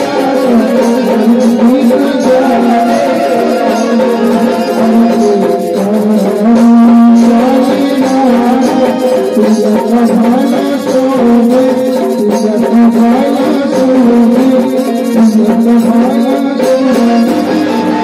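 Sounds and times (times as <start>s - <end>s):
harmonium: 0.0s - 18.0s
man singing into microphone: 0.0s - 18.0s
percussion beat: 0.0s - 18.0s.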